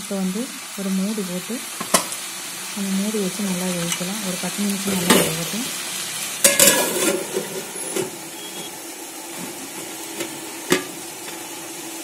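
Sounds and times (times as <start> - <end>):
chicken hissing in pot: 5.6 - 12.0
metal lid clattering on pot: 6.4 - 8.7, 9.4 - 11.0.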